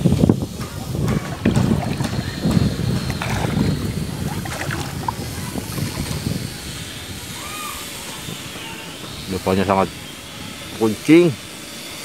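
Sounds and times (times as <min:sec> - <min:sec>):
wind buffeting microphone: 0:00.0 - 0:11.7.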